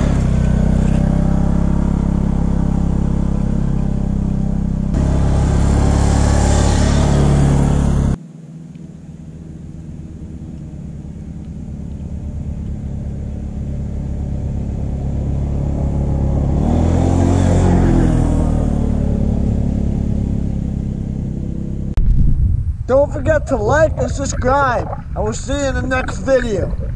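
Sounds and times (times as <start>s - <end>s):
quad bike engine passing by: 0.0s - 8.2s, 12.1s - 21.9s.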